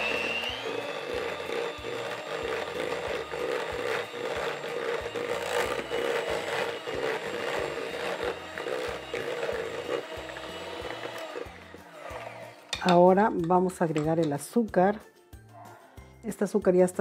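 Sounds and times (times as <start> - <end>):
electric hand mixer running: 0.0 - 13.4.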